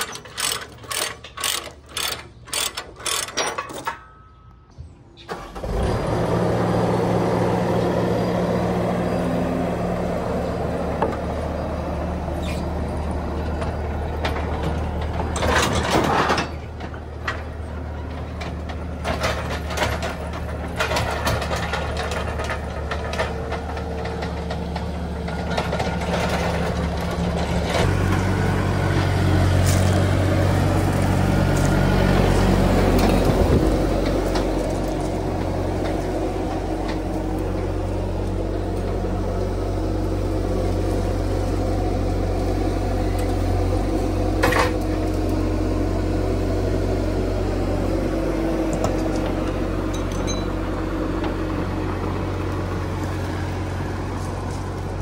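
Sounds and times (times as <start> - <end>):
diesel engine running: 0.0 - 4.0, 5.3 - 55.0
sharp metal clanks: 49.9 - 50.6.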